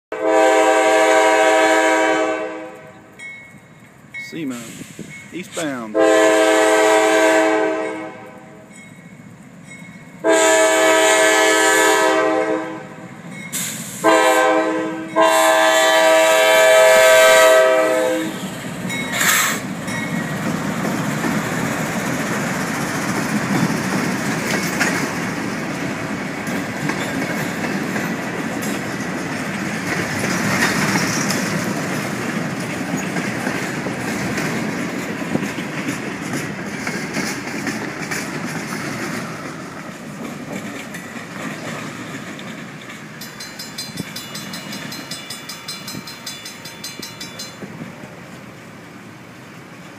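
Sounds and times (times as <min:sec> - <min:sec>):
locomotive air horn blasts: 0:00.1 - 0:03.1, 0:05.5 - 0:08.7, 0:10.2 - 0:13.0, 0:13.8 - 0:18.6
freight train rumbling past: 0:00.1 - 0:49.9
wheels clicking over rail joints: 0:18.4 - 0:48.3.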